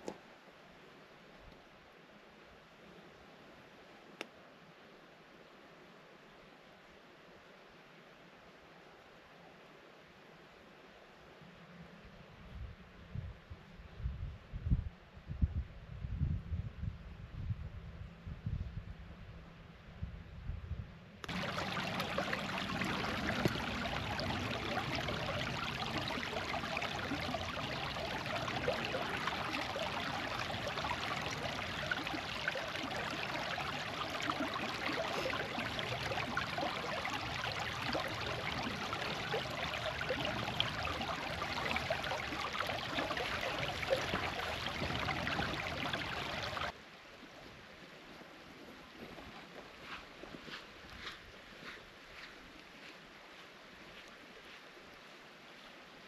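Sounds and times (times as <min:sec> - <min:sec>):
stream running over stones: 0:21.2 - 0:51.4.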